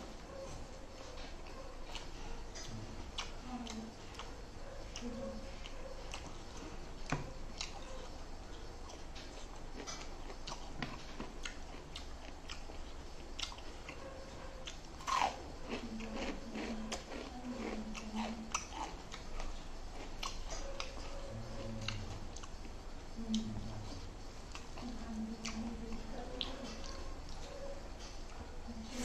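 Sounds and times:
person chewing crunchy food: 0:00.9 - 0:22.8.

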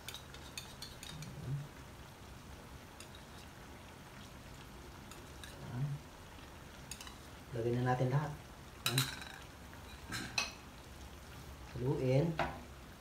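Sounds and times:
stew simmering in a pan: 0:00.0 - 0:13.0.

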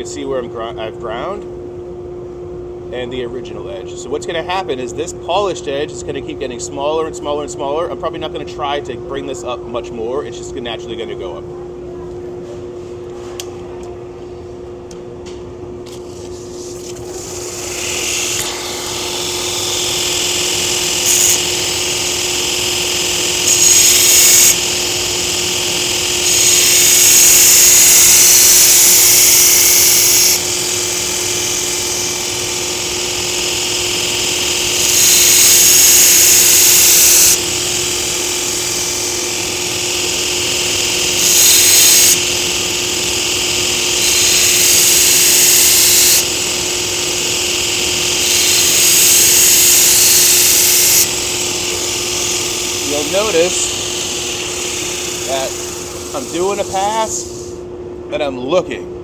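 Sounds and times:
steady machine hum: 0:00.0 - 0:59.0
blade grinding on belt grinder: 0:17.2 - 0:57.5.

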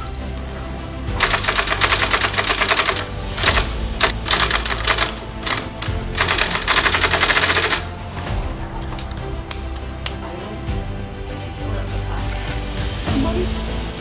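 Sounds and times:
sewing machine needle clatter: 0:01.2 - 0:07.9.

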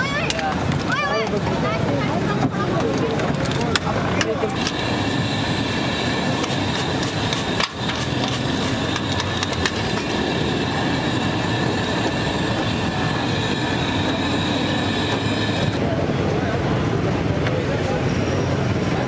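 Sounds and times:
chips sizzling in hot oil: 0:04.6 - 0:15.8
high-pitched whine: 0:04.6 - 0:15.9.

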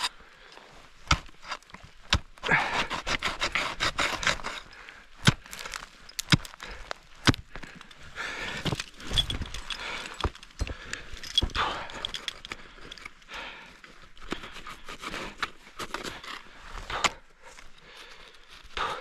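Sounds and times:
ice scraping and crunching: 0:00.0 - 0:13.2, 0:13.8 - 0:19.0
metal climbing gear jangling: 0:02.5 - 0:16.5.

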